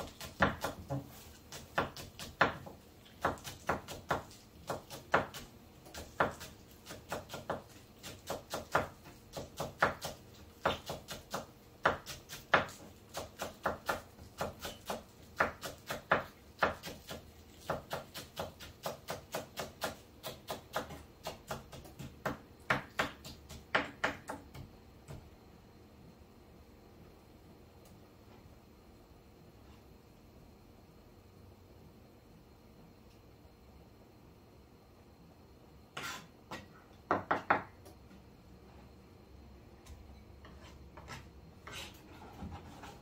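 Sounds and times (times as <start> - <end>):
knife chopping on cutting board: 0.0 - 25.2, 36.0 - 37.6.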